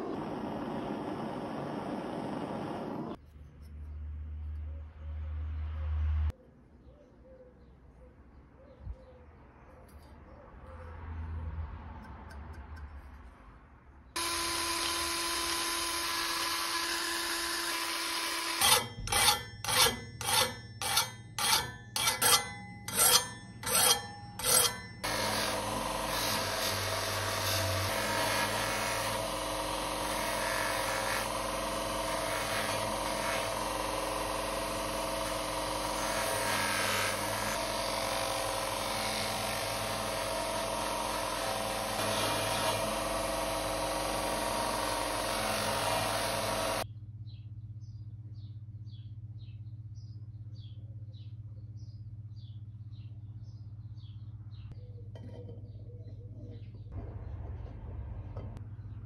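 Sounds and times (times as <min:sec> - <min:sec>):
motor hum: 0:00.0 - 0:03.2, 0:25.0 - 0:46.8
abrasive wheel grinding metal: 0:14.2 - 0:46.8.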